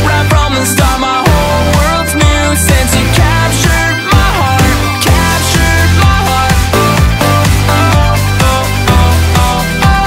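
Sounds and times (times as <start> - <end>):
upbeat background music: 0.0 - 10.0
kick drum beat: 0.3 - 10.0.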